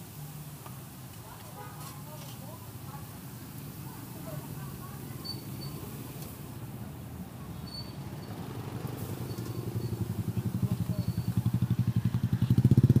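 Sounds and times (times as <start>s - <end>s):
motorcycle engine pulsing: 9.1s - 13.0s.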